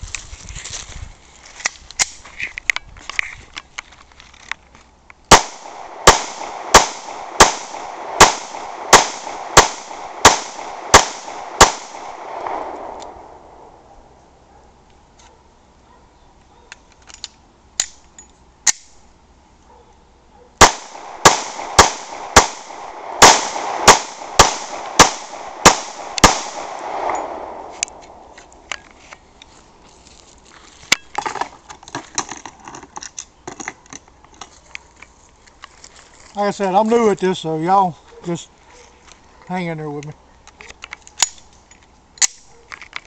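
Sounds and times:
pistol shots: 0:05.3 - 0:13.7, 0:20.6 - 0:28.2.

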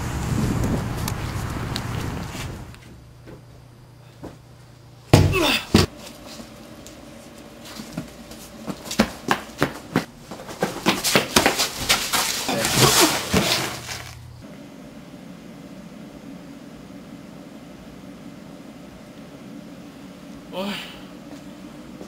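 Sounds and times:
scuffling: 0:07.6 - 0:14.4.

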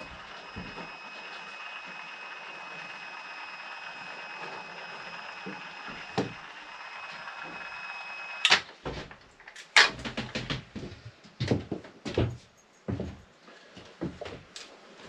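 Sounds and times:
caulking gun motor whining: 0:00.0 - 0:08.7.

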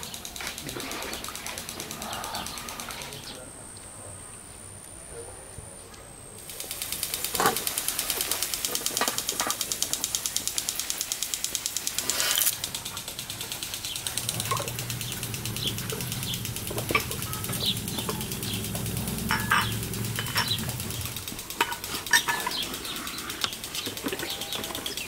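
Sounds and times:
insects chirping: 0:00.0 - 0:05.1, 0:06.1 - 0:25.0
low hum: 0:12.6 - 0:22.4.

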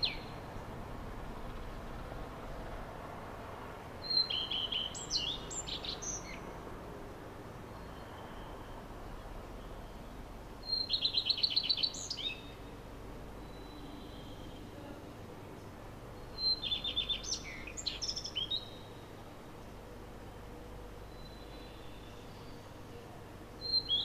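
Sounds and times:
faint steady background noise: 0:00.0 - 0:24.0
bird chirps and trills: 0:04.0 - 0:06.5, 0:09.6 - 0:12.7, 0:16.3 - 0:19.0, 0:23.6 - 0:24.0.

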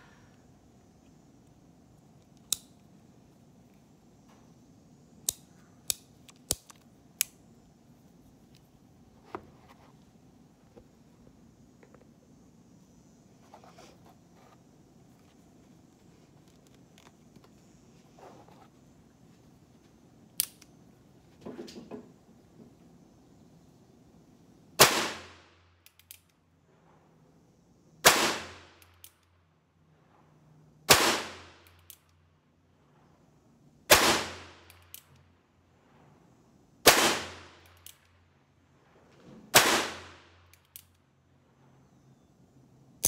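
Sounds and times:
gun handling noise: 0:05.3 - 0:07.4
revolver gunshots: 0:24.8 - 0:25.3, 0:28.0 - 0:28.6, 0:30.9 - 0:31.4, 0:36.8 - 0:37.4, 0:39.5 - 0:40.2.

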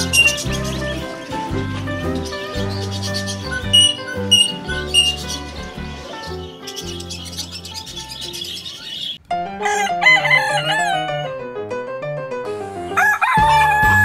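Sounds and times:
background music: 0:00.0 - 0:14.0
rooster crowing: 0:09.6 - 0:11.3, 0:13.0 - 0:14.0.

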